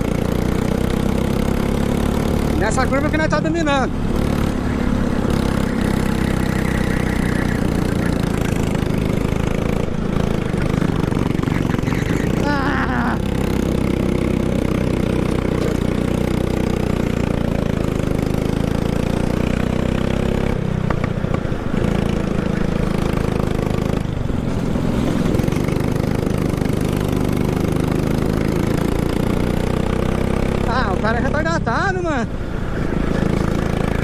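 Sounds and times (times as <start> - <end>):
kart engine running: 0.0 - 34.0.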